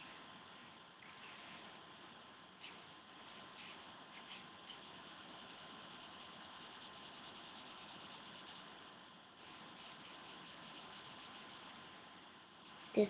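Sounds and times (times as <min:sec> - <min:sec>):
felt-tip pen scratching on paper: 0:04.7 - 0:08.6, 0:09.4 - 0:11.7.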